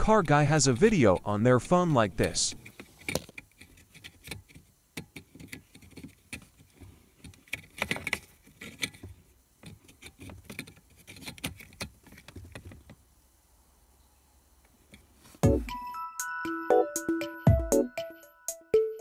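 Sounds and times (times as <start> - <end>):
plastic clicks and rattles: 2.6 - 13.0.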